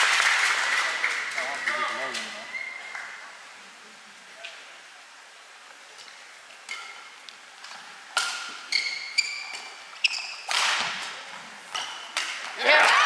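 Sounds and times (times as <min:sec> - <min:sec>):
rackets hitting shuttlecock: 0:06.7 - 0:13.0.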